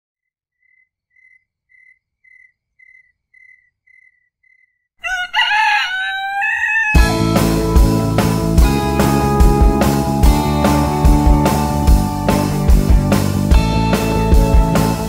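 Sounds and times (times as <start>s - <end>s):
rooster crowing: 5.0s - 7.2s.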